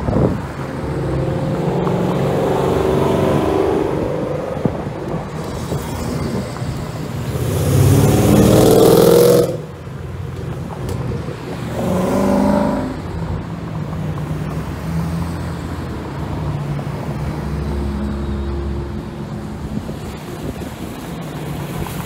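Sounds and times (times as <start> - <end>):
car engine revving: 0.8 - 9.9, 11.5 - 13.4.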